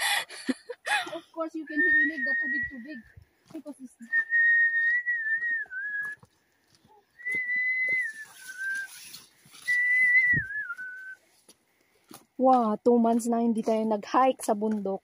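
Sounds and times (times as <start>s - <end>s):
person whistling: 1.7s - 2.8s, 4.1s - 6.2s, 7.2s - 11.2s.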